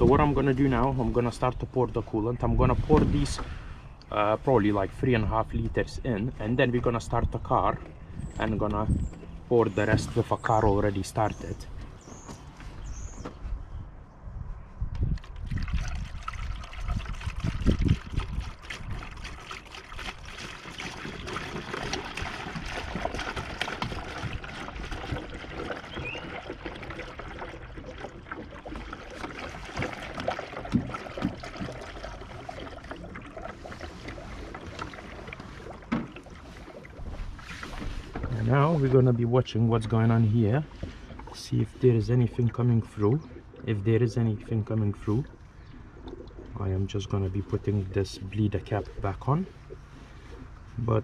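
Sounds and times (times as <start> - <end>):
liquid pouring and splashing: 15.2 - 38.6.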